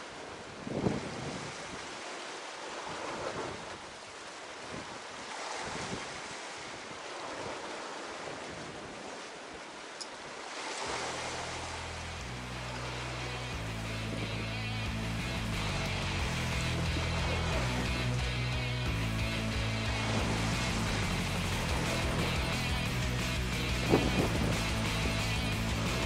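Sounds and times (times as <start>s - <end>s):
sea waves on rocky shore: 0.0s - 26.0s
wind buffeting microphone: 0.4s - 1.8s, 20.0s - 26.0s.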